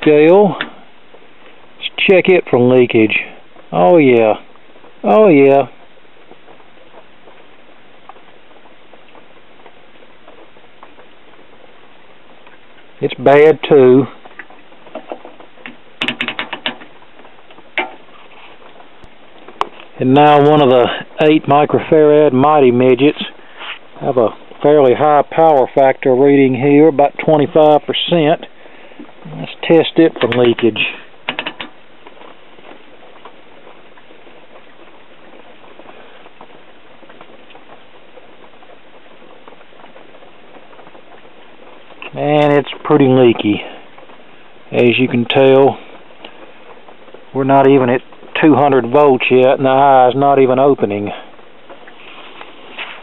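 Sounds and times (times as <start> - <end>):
faint clicks and crackles: 0.0 - 53.0
steady hiss: 0.0 - 53.0.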